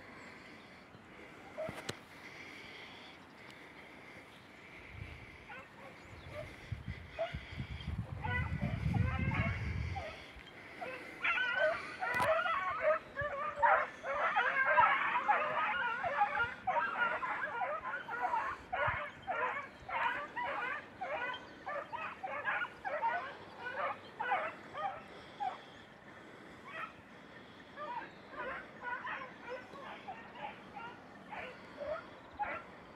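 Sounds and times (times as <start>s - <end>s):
beagles yelping: 8.2s - 25.8s, 26.6s - 32.9s.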